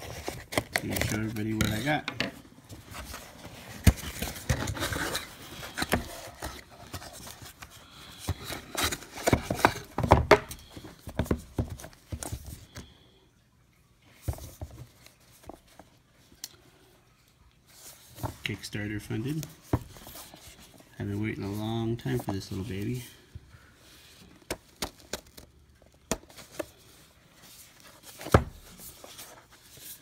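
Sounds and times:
cardboard box scrapes and rustles: 2.7s - 7.7s.

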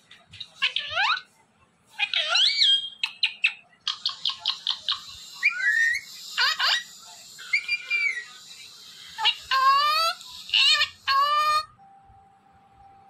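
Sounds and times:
parakeet whistling and squawking: 2.0s - 11.7s.

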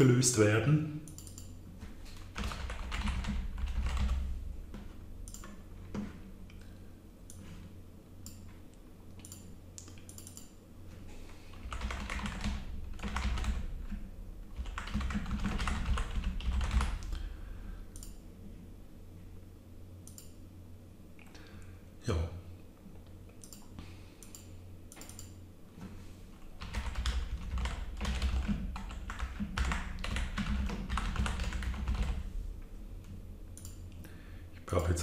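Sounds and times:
typing on a keyboard: 2.1s - 4.2s, 11.5s - 17.1s, 26.6s - 32.2s.

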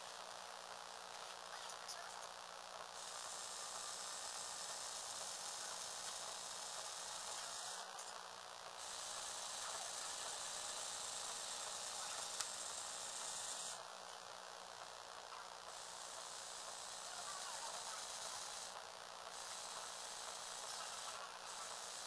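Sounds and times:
small electric motor whirring: 2.8s - 22.0s.

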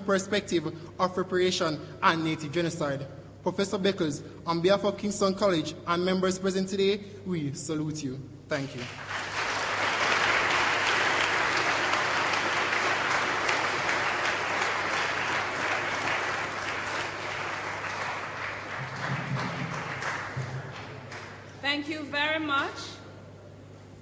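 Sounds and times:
crowd applauding: 8.8s - 21.5s.

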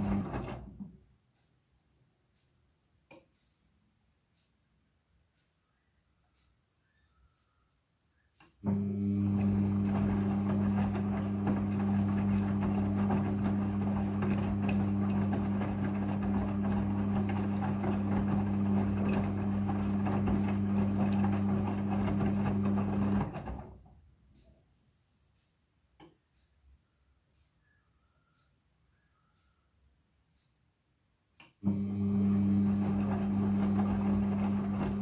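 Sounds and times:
laundry and water swishing: 0.0s - 0.7s, 9.0s - 23.6s
washing machine drum motor humming: 0.0s - 1.0s, 8.6s - 23.9s, 31.6s - 35.0s.

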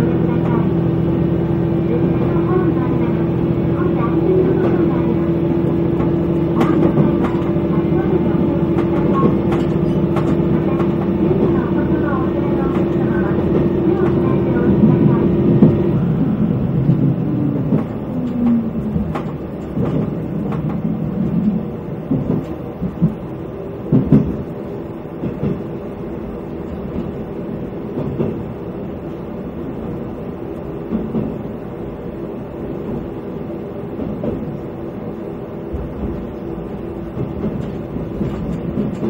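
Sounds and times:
train engine and wheel rumble: 0.0s - 39.0s
wheel clacks over rail joints: 5.7s - 7.8s, 8.4s - 15.9s.

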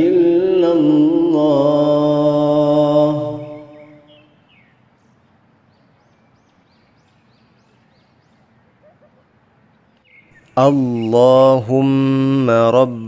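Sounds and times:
low steady hiss: 0.0s - 13.0s
bird chirping: 3.2s - 12.0s.

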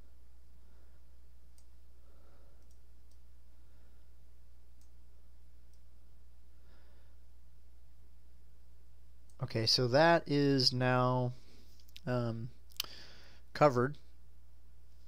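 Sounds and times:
steady low hum: 0.0s - 15.0s
computer mouse clicks: 2.6s - 3.2s.

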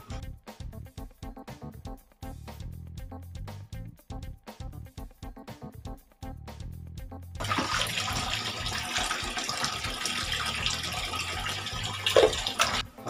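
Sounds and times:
tap running into metal sink: 7.4s - 12.8s
water splashing: 7.4s - 12.8s.

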